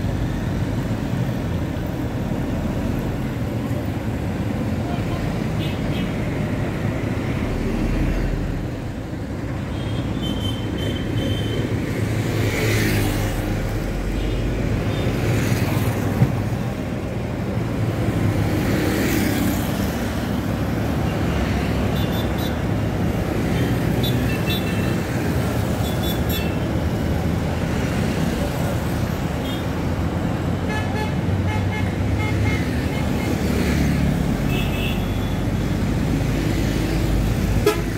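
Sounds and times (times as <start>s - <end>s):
buses passing: 0.0s - 37.9s
motorcycles passing: 17.2s - 34.6s.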